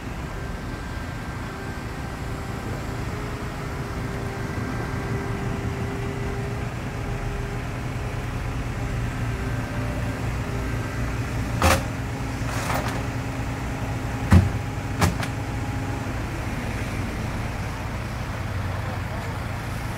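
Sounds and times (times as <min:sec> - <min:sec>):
diesel engine running: 0:00.0 - 0:19.9
bucket knocking on truck deck: 0:14.3 - 0:15.4.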